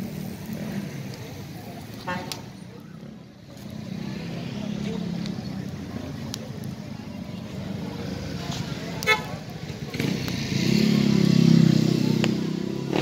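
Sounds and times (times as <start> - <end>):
street noise: 0.0 - 13.0.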